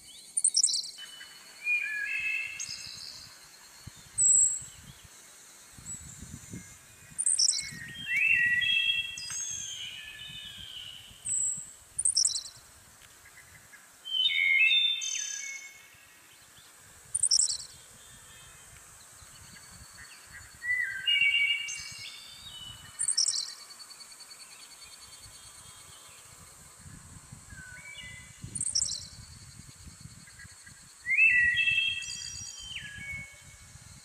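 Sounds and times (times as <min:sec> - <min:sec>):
birds chirping: 0:00.0 - 0:26.4, 0:27.5 - 0:33.4
faint background hiss: 0:00.0 - 0:34.0
birds whistling: 0:00.3 - 0:05.0, 0:06.0 - 0:12.5, 0:14.1 - 0:15.9, 0:17.2 - 0:18.6, 0:19.4 - 0:23.6, 0:27.5 - 0:29.2, 0:30.3 - 0:33.4.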